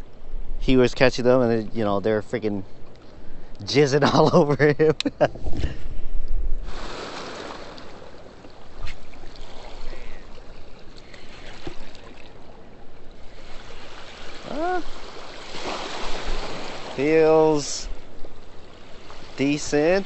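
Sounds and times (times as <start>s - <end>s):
water rushing through spillway: 13.3s - 17.9s.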